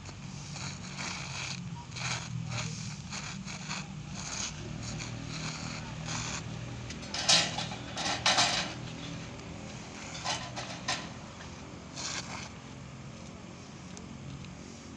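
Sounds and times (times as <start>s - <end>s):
steel pipes clanking and scraping: 5.0s - 9.2s, 10.0s - 11.6s.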